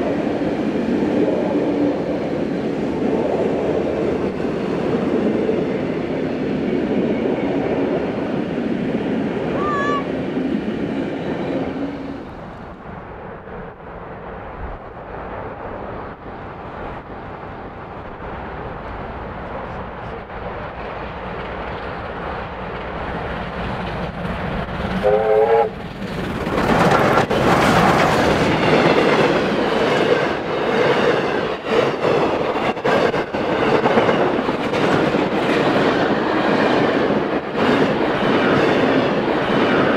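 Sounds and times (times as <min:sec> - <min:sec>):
steam locomotives running past: 0:00.0 - 0:39.9
steam whistle blast: 0:25.0 - 0:25.7
train carriages clattering over rails: 0:25.7 - 0:39.9.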